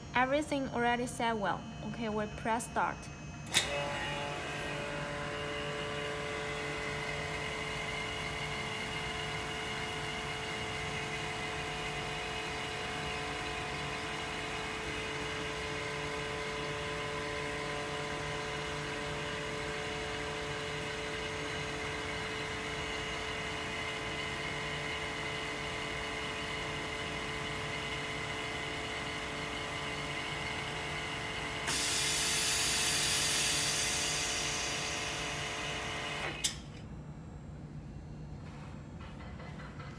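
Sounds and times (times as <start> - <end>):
vacuum pump humming: 0.0 - 36.9
air hissing: 31.7 - 35.4.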